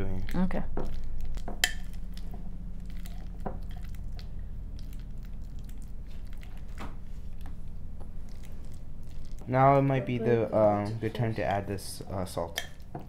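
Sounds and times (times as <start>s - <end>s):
avocado squishing: 0.0s - 9.5s, 12.5s - 13.0s.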